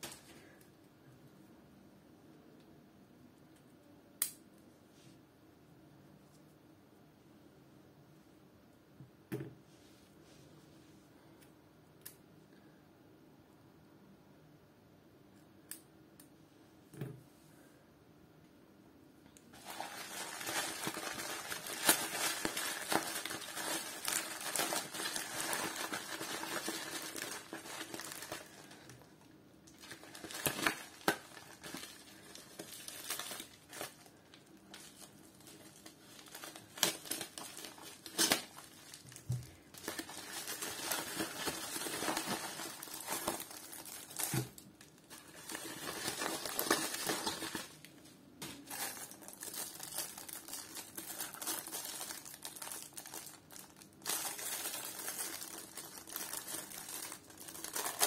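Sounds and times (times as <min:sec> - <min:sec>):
plastic mailer bag crinkling: 0:19.5 - 0:29.1, 0:29.7 - 0:47.8, 0:48.6 - 0:58.0.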